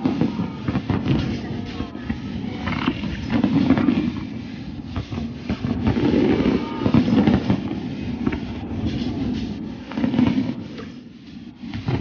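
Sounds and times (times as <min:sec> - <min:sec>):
firework shells bursting: 0:00.0 - 0:12.0
sharp firework cracks: 0:05.2 - 0:10.9.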